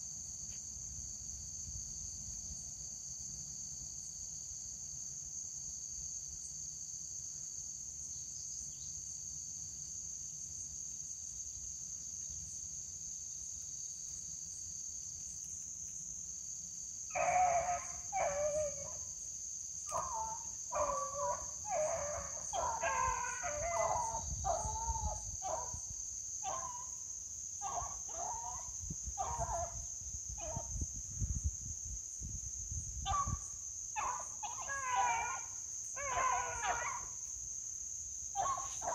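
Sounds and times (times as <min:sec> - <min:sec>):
beagles baying: 0:17.1 - 0:19.1, 0:19.9 - 0:25.8, 0:26.4 - 0:26.9, 0:27.6 - 0:29.8, 0:34.0 - 0:37.2, 0:38.4 - 0:38.9
insect trilling: 0:17.1 - 0:26.9, 0:27.6 - 0:31.3, 0:33.0 - 0:37.4, 0:38.4 - 0:38.9.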